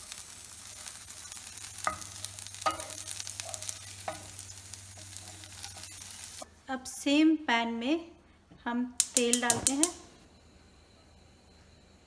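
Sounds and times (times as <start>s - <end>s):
okra sizzling in oil: 0.0s - 6.5s.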